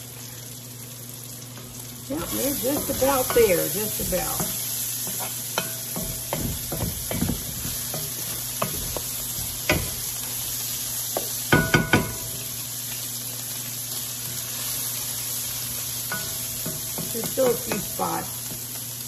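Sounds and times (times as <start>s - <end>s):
bacon and onions sizzling: 0.0s - 19.0s
spatula stirring and scraping: 2.1s - 11.4s
spatula knocking on pan: 2.6s - 10.1s, 11.1s - 12.4s.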